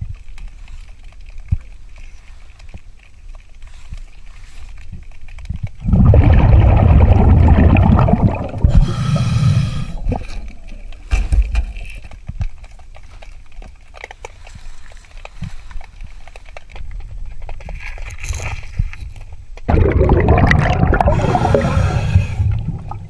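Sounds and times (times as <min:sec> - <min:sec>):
exhaled bubbles gurgling: 0:05.6 - 0:11.1, 0:19.6 - 0:23.0
regulator inhale hiss: 0:08.7 - 0:10.4, 0:21.1 - 0:22.9.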